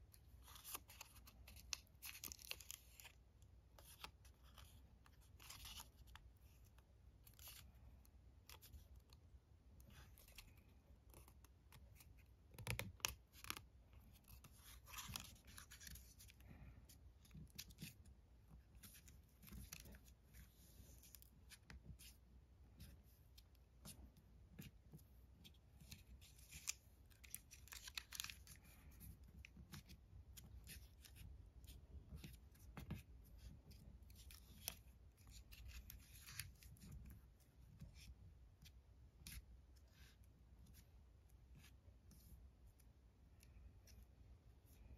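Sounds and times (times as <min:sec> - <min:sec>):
paper rustling and crinkling: 0:00.4 - 0:03.2, 0:25.4 - 0:38.1.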